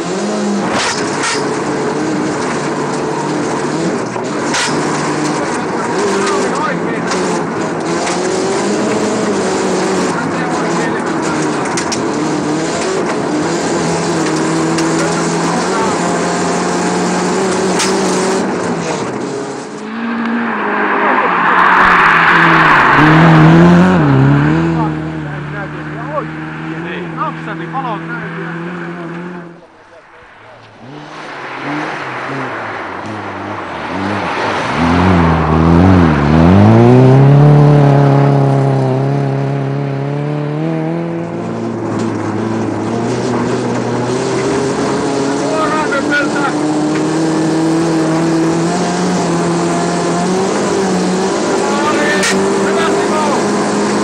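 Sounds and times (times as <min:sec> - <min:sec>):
rally car engine running: 0:00.0 - 0:54.0
rough noisy sound: 0:41.0 - 0:54.0.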